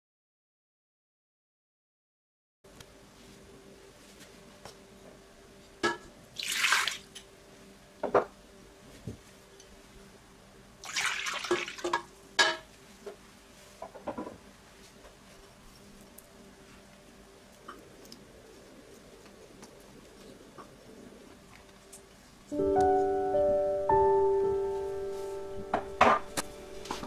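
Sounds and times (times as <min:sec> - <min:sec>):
water splashing in metal pot: 0:06.4 - 0:07.1, 0:10.8 - 0:12.1.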